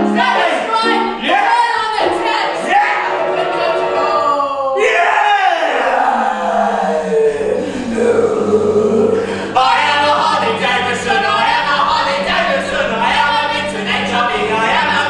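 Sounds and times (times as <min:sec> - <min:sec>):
choir singing: 0:00.0 - 0:15.0
steady low drone: 0:06.6 - 0:15.0.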